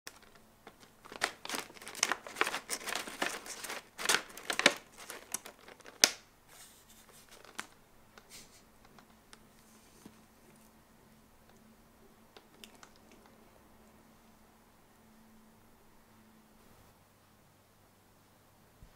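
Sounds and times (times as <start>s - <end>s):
paper bag crinkling: 0.1s - 10.7s.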